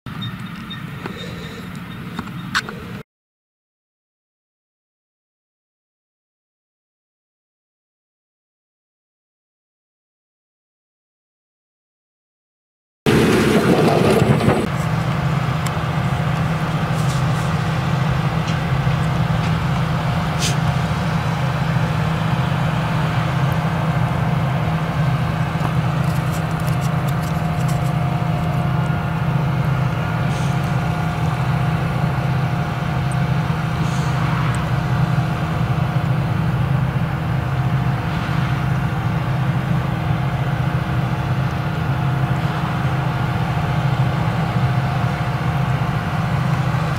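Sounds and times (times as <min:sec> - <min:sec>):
harvester engine drone: 0:00.1 - 0:03.0, 0:13.1 - 0:46.9.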